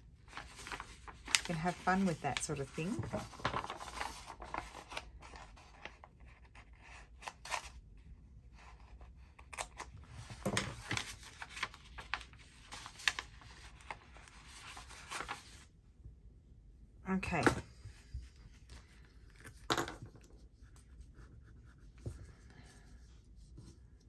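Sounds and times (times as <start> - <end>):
paper rustling: 0.1 - 7.7, 9.4 - 15.7.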